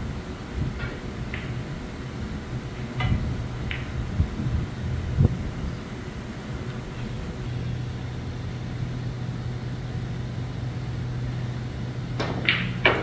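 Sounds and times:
low background hum: 0.0s - 13.0s
snooker balls clacking: 12.2s - 13.0s.

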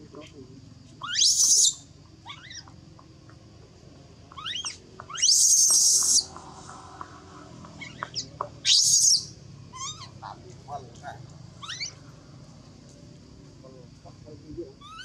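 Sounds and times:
baby monkey squealing and screaming: 1.0s - 2.7s, 4.3s - 6.3s, 7.8s - 10.2s, 11.6s - 12.0s, 14.8s - 15.0s.

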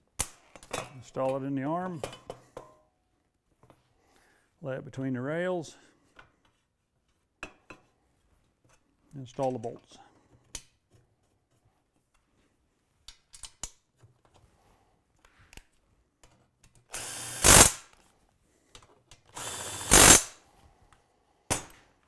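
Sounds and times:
cordless drill-driver running: 16.9s - 17.8s, 19.4s - 20.3s.

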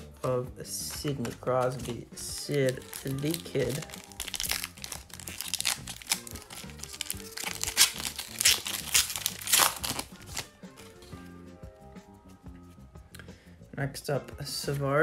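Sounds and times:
background music: 0.0s - 15.0s
foil wrapper crinkling: 1.6s - 10.5s.

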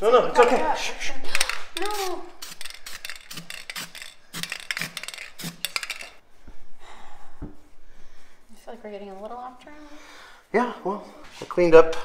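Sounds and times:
spray can rattling: 1.3s - 6.2s.

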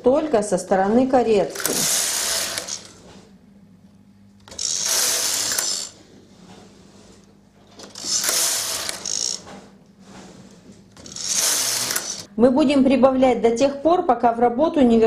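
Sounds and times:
knitting machine carriage rattling: 11.0s - 12.3s.

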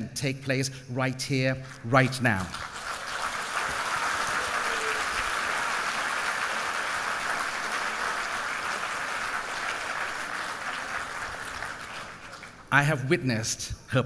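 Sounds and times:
audience applauding: 2.4s - 12.7s.

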